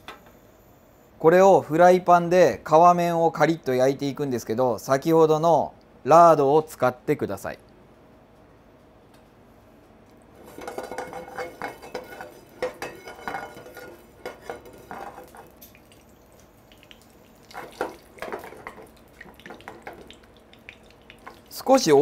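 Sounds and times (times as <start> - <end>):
metal kitchenware clinking: 10.4 - 15.6, 17.5 - 20.2
pan scraping on grate: 10.4 - 15.6, 17.5 - 20.1.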